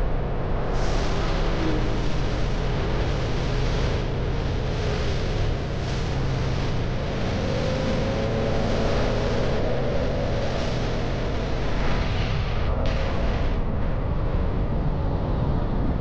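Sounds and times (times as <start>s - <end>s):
motorbike engine drone: 0.0s - 16.0s
wind rushing over microphone: 0.0s - 16.0s.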